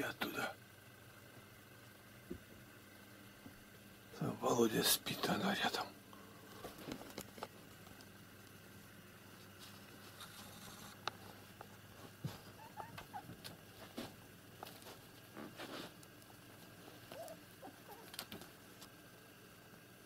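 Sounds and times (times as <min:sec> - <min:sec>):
small clicks and knocks: 0:06.7 - 0:08.5
kitten paws pattering on paper: 0:11.6 - 0:18.9.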